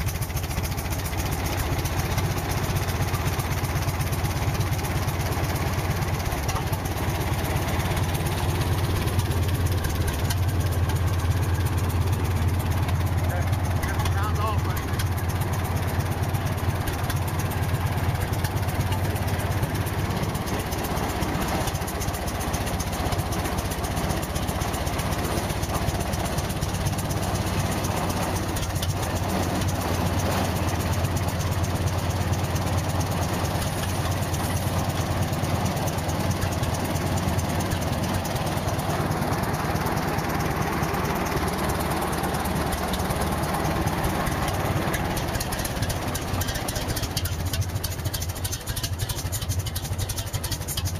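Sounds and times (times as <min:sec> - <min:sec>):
diesel engine idling: 0:00.0 - 0:50.9.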